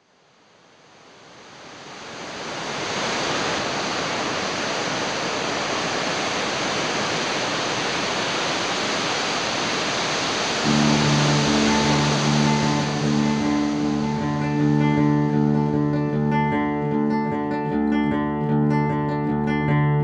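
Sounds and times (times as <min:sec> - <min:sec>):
ocean surf rushing: 0:00.8 - 0:16.8.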